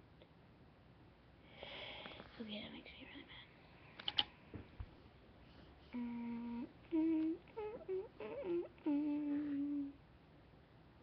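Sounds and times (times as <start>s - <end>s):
boy humming: 5.9s - 10.0s.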